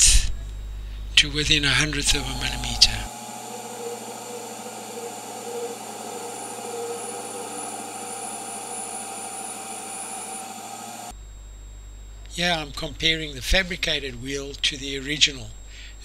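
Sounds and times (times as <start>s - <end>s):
mini lathe whine: 1.7s - 11.1s.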